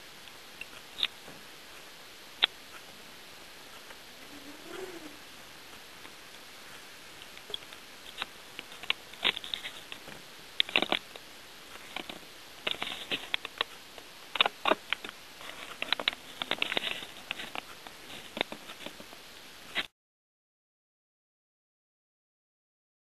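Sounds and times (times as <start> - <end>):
steady hiss: 0.0 - 19.9
light clicks and taps: 6.0 - 19.2.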